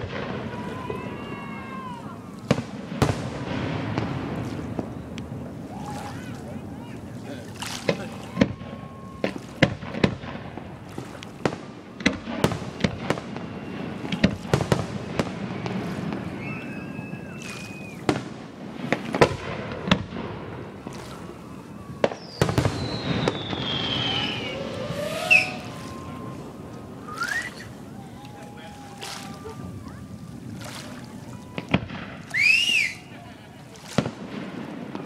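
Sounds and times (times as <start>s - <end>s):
falling firework whistle: 12.4s - 18.2s, 21.1s - 30.0s, 31.3s - 33.1s.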